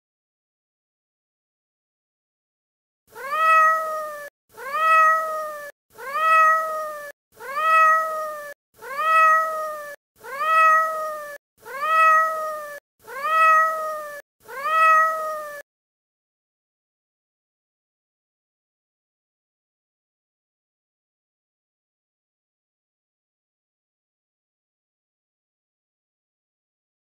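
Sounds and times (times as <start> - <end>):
cat meowing: 3.1 - 15.6.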